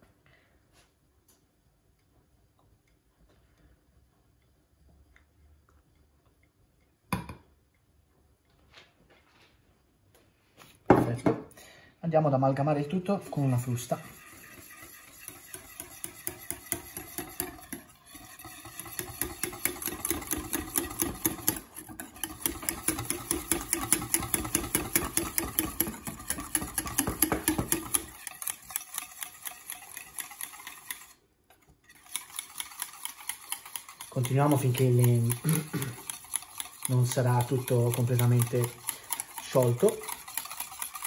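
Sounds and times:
wire whisk beating in metal saucepan: 0:12.6 - 0:41.0.

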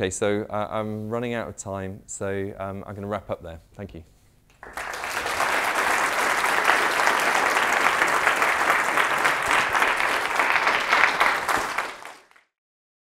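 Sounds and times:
audience applauding: 0:04.5 - 0:12.5.

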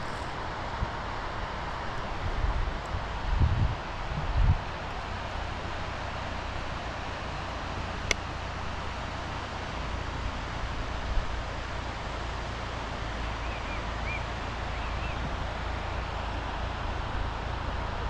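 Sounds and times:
wind buffeting microphone: 0:00.0 - 0:05.7.

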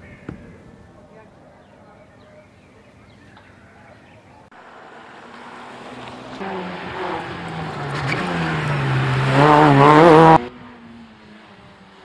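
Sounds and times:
race car engine approaching: 0:04.3 - 0:12.0.

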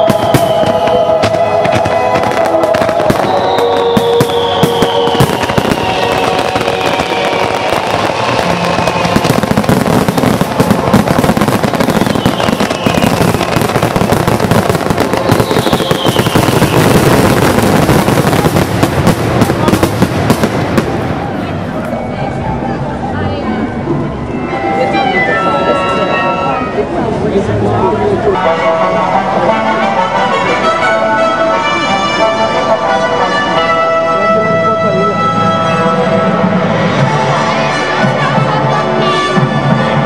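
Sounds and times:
falling firework whistles: 0:00.0 - 0:18.6
firework shells bursting: 0:00.0 - 0:21.2
firework crackling: 0:00.0 - 0:21.9.

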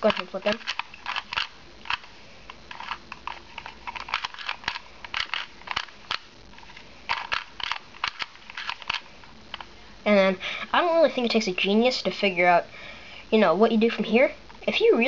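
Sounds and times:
puzzle cube clacking clicks: 0:00.0 - 0:06.3, 0:07.1 - 0:09.7.

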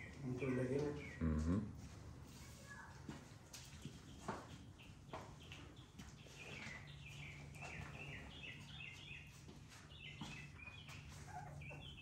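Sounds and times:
puppies whining: 0:10.6 - 0:12.0.

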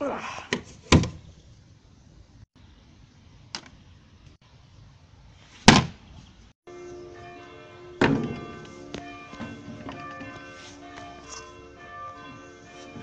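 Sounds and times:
bin lid slamming shut: 0:05.7 - 0:06.0, 0:08.0 - 0:08.5
light music with bell-like notes: 0:06.7 - 0:13.0.

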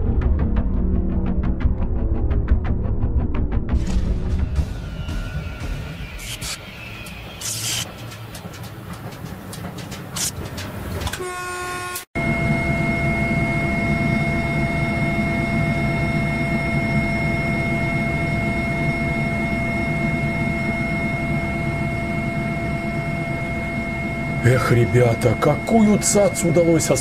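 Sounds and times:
locomotive engine drone: 0:00.0 - 0:27.0
high whine: 0:03.8 - 0:11.5, 0:12.2 - 0:27.0
locomotive horn toot: 0:11.1 - 0:12.1.

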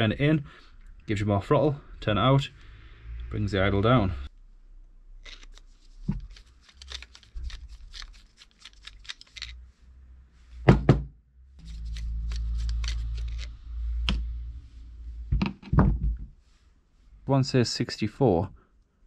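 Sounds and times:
low steady hum: 0:09.6 - 0:19.0.

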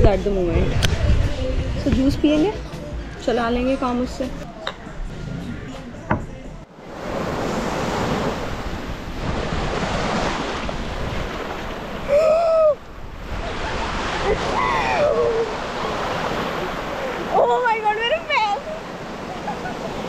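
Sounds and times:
woman's voice: 0:00.0 - 0:00.8, 0:01.8 - 0:02.6, 0:03.2 - 0:04.4, 0:17.3 - 0:18.7
wind buffeting the microphone: 0:00.0 - 0:04.4, 0:06.9 - 0:17.4
ocean surf on a beach: 0:06.7 - 0:20.0.

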